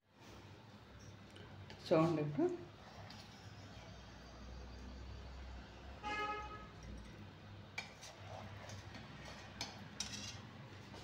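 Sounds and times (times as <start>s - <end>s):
knife scraping metal plate: 7.8s - 10.6s.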